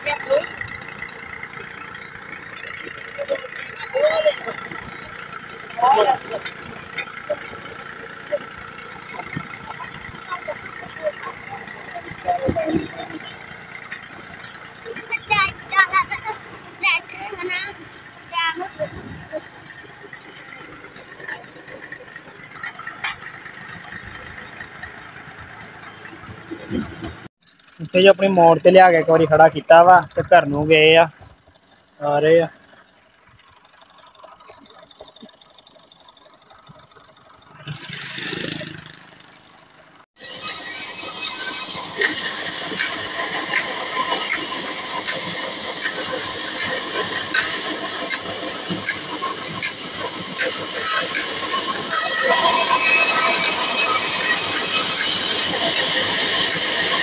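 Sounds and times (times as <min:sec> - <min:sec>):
clanks and rattles: 0:00.0 - 0:16.8, 0:17.4 - 0:40.1, 0:41.8 - 0:57.0
tractor engine running: 0:00.0 - 0:57.0.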